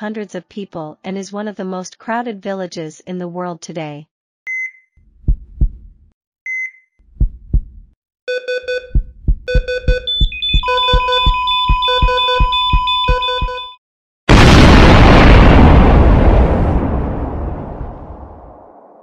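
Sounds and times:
heart monitor beep: 4.5 - 5.8, 6.5 - 7.7, 8.3 - 13.8
heartbeat thumps: 5.2 - 6.1, 7.1 - 8.0, 8.8 - 13.6
high flatline monitor tone: 8.3 - 13.8
pulsing synthesizer rhythm: 8.5 - 13.8.

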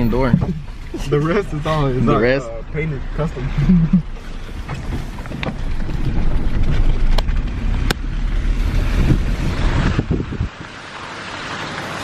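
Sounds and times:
car engine and tyre rumble: 0.0 - 12.0
wind noise on microphone: 4.6 - 10.8.

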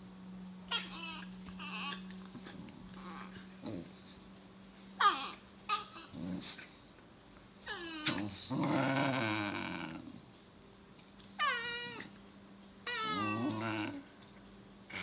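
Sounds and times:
dog growling and whining: 0.7 - 4.2, 5.0 - 6.9, 7.6 - 10.3, 11.4 - 12.2, 12.8 - 14.2.

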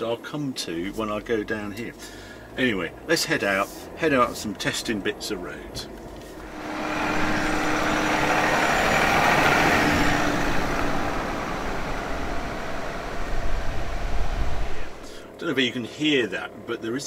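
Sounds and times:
vehicle driving past: 6.3 - 15.2.

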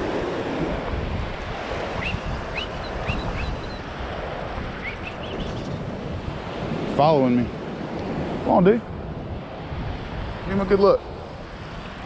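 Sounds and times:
surf: 0.0 - 12.0
wind: 0.0 - 12.0
high rising bird chirps: 2.0 - 3.9, 4.8 - 5.8.

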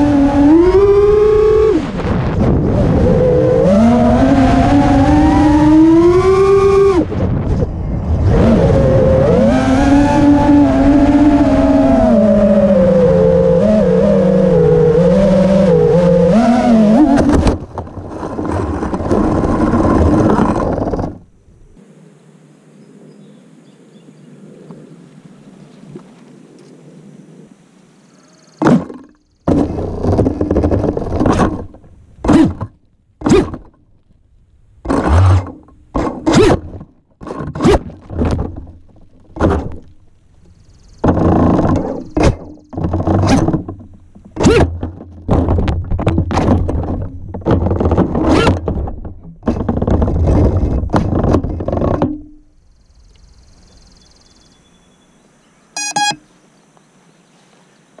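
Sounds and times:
drone motors revving: 0.0 - 7.1, 8.0 - 17.6
propellers thrashing against branches: 15.0 - 21.3
short beep: 55.8 - 56.2.

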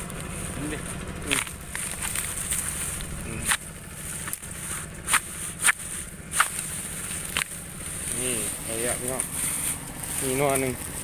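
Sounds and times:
footsteps crunching on dry leaves: 0.0 - 11.0.

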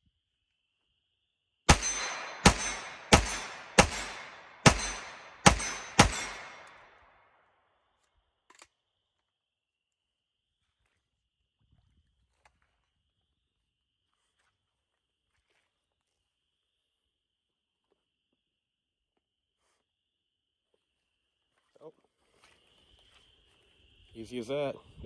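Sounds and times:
gunshots echoing: 1.7 - 7.0.

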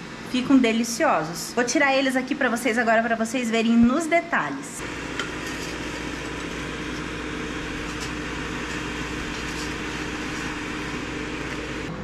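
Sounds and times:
air fryer fan humming: 4.8 - 12.0.

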